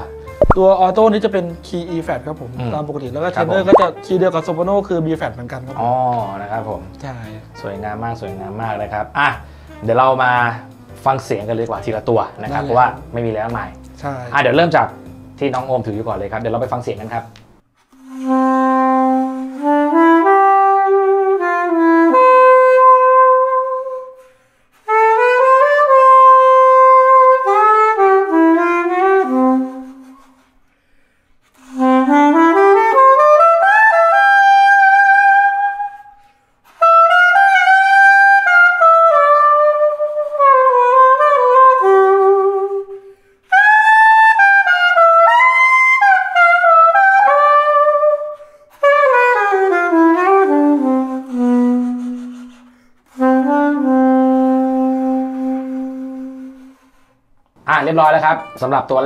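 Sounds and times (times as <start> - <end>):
soprano saxophone melody: 18.0 - 24.2, 24.8 - 30.4, 31.6 - 36.1, 36.7 - 57.1, 58.2 - 58.8.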